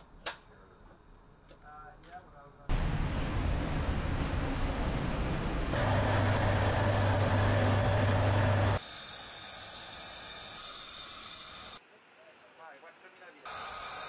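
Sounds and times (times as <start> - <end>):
deep engine hum: 2.7 - 8.8
loud machinery hiss: 5.8 - 11.8, 13.5 - 14.0.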